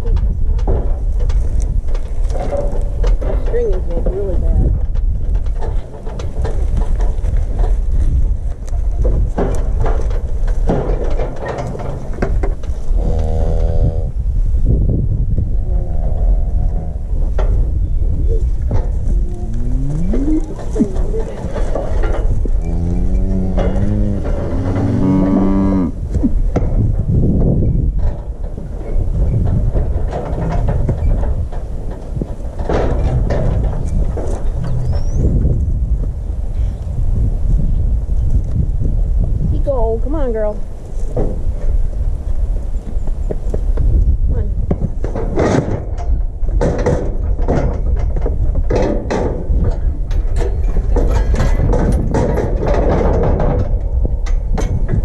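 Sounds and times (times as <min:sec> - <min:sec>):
steel chute clanking and rattling: 0:00.0 - 0:12.9, 0:15.7 - 0:35.9, 0:45.0 - 0:55.0
steady low rumble: 0:00.0 - 0:55.0
wind buffeting microphone: 0:00.0 - 0:55.0.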